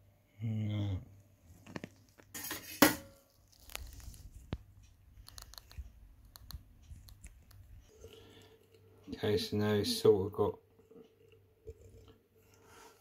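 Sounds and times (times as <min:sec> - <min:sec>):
rustling: 0:01.5 - 0:08.4.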